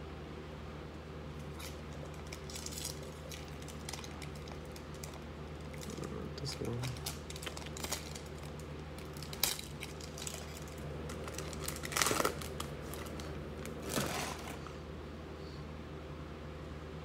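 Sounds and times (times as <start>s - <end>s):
foil wrapper crinkling and tearing: 1.5s - 14.8s.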